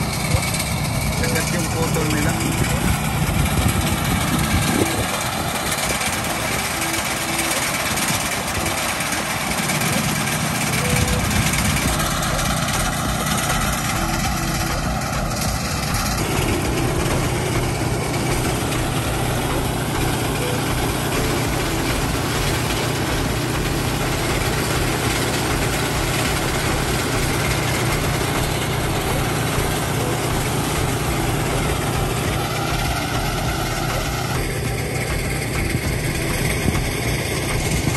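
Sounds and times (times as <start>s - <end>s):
threshing machine engine drone: 0.0s - 37.9s.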